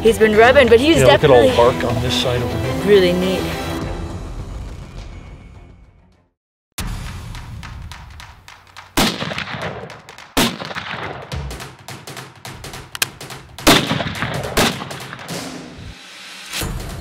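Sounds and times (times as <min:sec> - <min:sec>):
background music: 0:00.0 - 0:06.3
rifle shots with echo: 0:09.0 - 0:12.2, 0:12.9 - 0:15.7.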